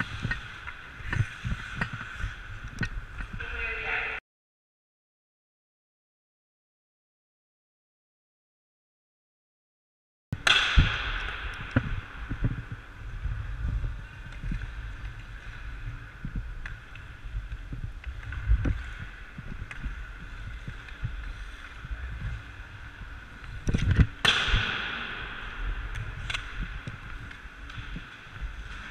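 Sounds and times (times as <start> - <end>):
hockey stick clicking on puck: 0.0 - 3.3, 25.6 - 28.1
skate blades scraping on ice: 0.0 - 3.3, 11.0 - 28.9
wind rumble on microphone: 0.0 - 4.0, 10.4 - 28.9.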